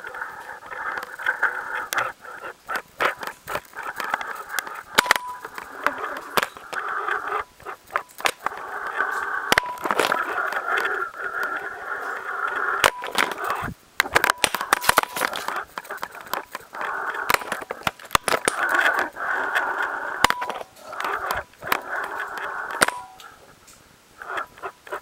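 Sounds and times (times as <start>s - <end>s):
camera rig scraping rock walls: 0.0s - 23.5s
mid-pitched whine: 0.0s - 25.0s
sharp clicks: 0.0s - 25.0s.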